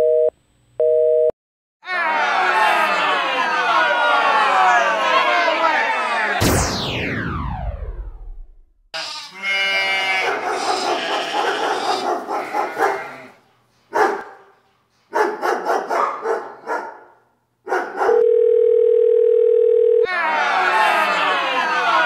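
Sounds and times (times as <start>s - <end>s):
steady telephone tone: 0.0s - 1.3s, 18.2s - 20.1s
dog barking: 10.2s - 18.2s.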